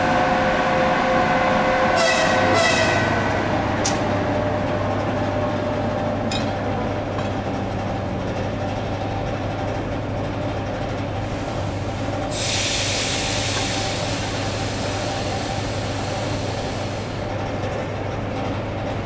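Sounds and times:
electric locomotive humming: 0.0 - 19.0
loud hiss: 12.3 - 17.3.

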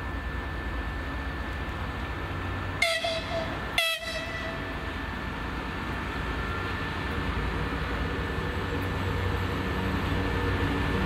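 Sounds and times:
low rumble of diesel engines: 0.0 - 11.0
locomotive horn blasts: 2.8 - 4.8.

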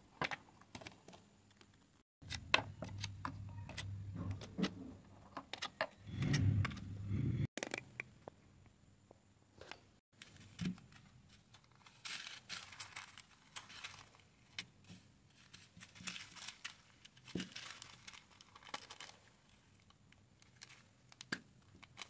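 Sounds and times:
plastic bags crinkling: 11.7 - 14.4, 15.4 - 22.0.

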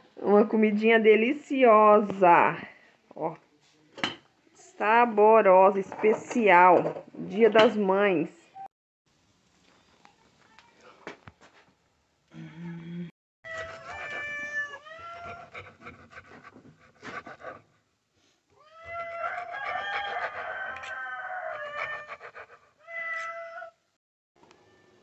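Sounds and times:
cat meowing: 13.5 - 15.4, 18.6 - 19.4, 22.8 - 23.8.

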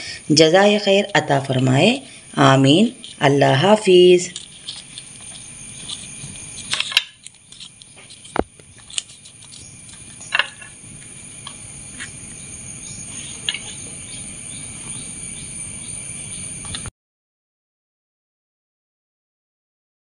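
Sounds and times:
high-pitched background hum: 0.0 - 16.9
crisp flatbread tearing crackles: 4.3 - 10.2.

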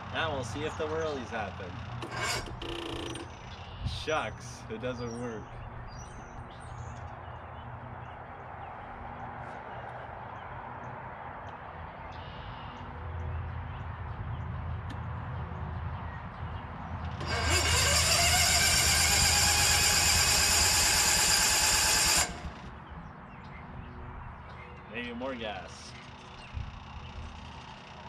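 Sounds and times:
electric starter whirring: 1.6 - 3.7, 17.0 - 22.8.

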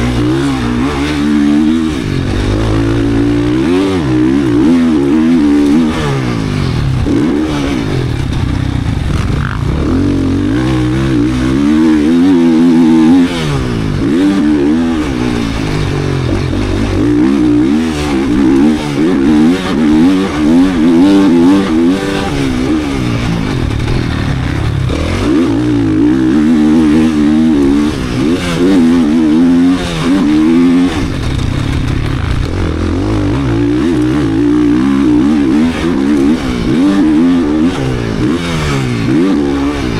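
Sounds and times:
gear changes: 0.0 - 39.9
motocross bike engine revving: 0.0 - 39.9.

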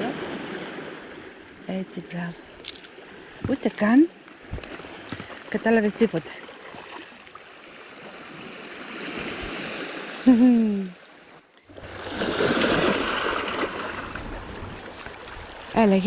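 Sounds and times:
waves washing over pebbles: 11.8 - 16.0.

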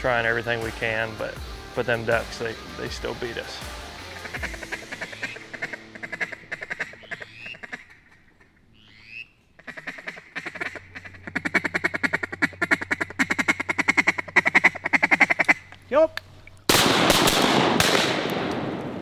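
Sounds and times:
duck call quacks: 4.1 - 15.7
duck call whistle notes: 4.2 - 7.9.

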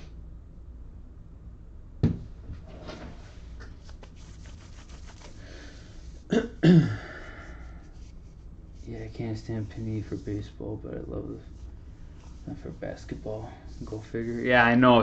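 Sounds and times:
man coughing: 6.3 - 7.3.

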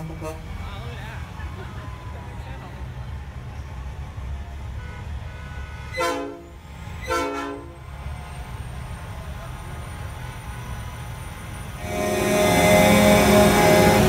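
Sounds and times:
truck air horn blasts: 0.0 - 0.6, 4.8 - 7.8, 11.7 - 14.0
truck engines rumbling past: 0.0 - 14.0.

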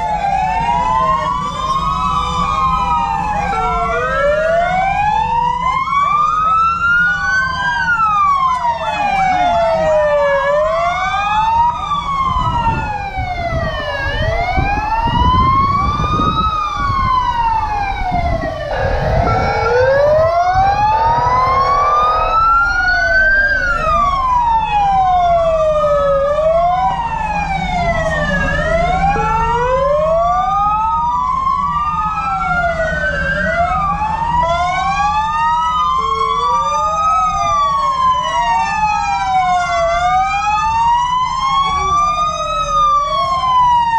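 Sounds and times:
fire engine sirens wailing: 0.0 - 43.9
truck engines rumbling: 0.0 - 43.9
steady horn: 18.4 - 23.3.

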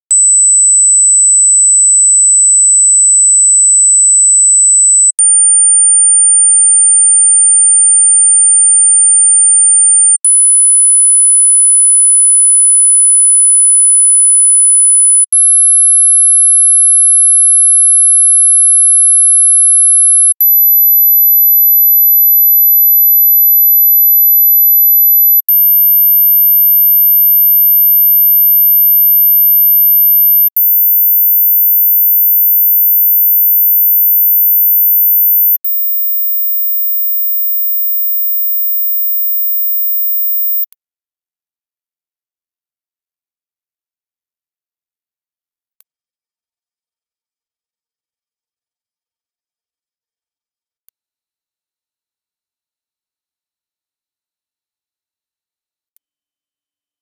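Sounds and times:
high-pitched sine tones: 20.4 - 25.6, 35.5 - 40.7.

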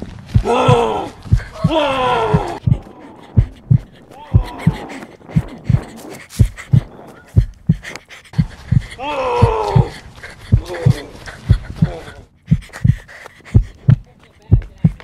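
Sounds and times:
heartbeat-like thumps: 0.0 - 15.0
person crying out: 0.4 - 4.9, 9.0 - 10.0.

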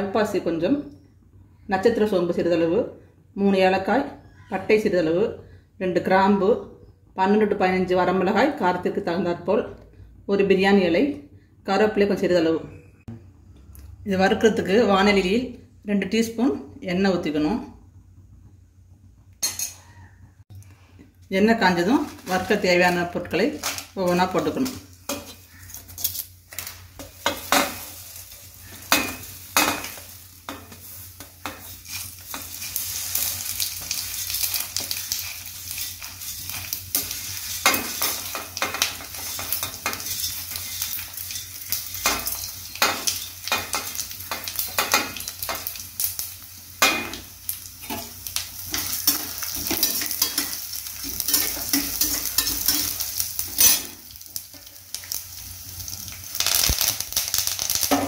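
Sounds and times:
spices sizzling in hot oil: 21.5 - 58.0
metal utensils scraping steel pan: 22.1 - 28.0, 28.6 - 45.8, 47.8 - 54.0.

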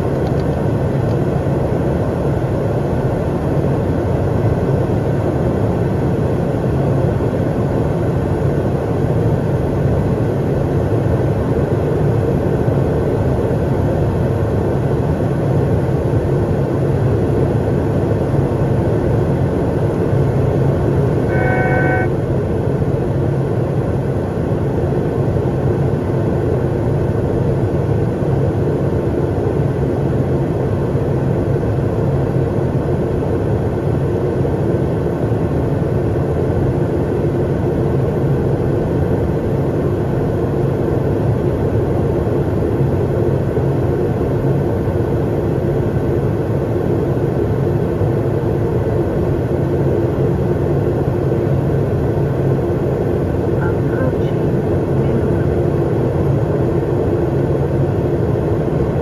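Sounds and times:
jet engines and airflow in cockpit: 0.0 - 59.0
electronic alert tone: 21.3 - 22.1.

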